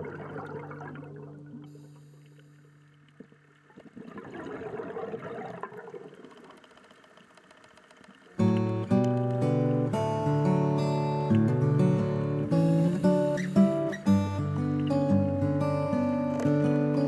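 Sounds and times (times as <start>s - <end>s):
bubbling rush of water underwater: 0.0s - 2.0s, 3.0s - 6.7s.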